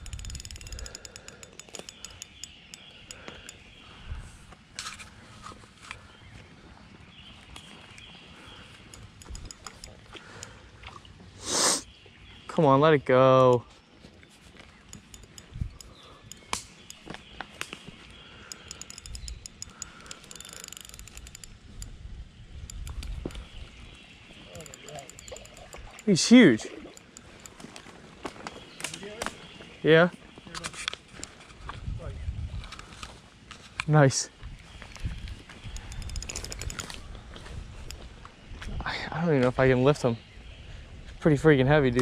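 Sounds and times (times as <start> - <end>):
fishing reel clicking: 0.0 - 3.7, 8.9 - 10.6, 14.9 - 17.1, 18.1 - 22.0, 22.6 - 23.6, 24.5 - 27.7, 35.7 - 37.0.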